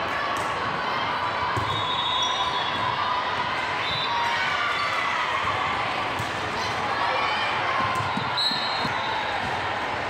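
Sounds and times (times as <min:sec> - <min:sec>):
hubbub of voices: 0:00.0 - 0:10.0
sneakers squeaking: 0:07.8 - 0:09.6.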